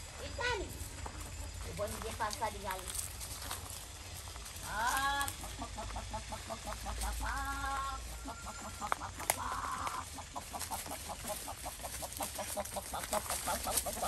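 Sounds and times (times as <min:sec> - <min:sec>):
hens clucking: 0:00.0 - 0:14.0
rustle: 0:00.0 - 0:14.0
hen squawks: 0:04.6 - 0:14.0.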